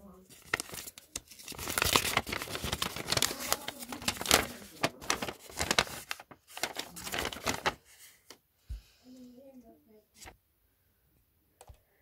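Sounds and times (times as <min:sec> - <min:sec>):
paper crinkling and rustling: 0:00.1 - 0:08.4, 0:10.2 - 0:10.4.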